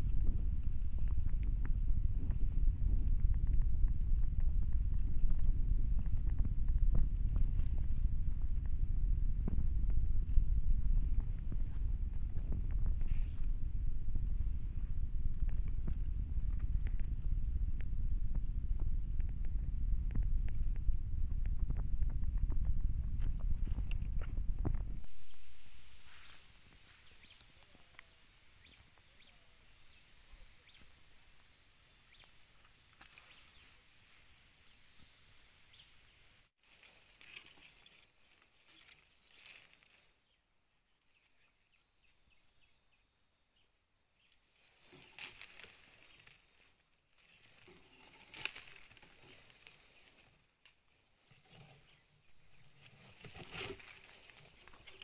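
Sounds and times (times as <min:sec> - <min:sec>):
insects chirring: 0:25.0 - 0:55.0.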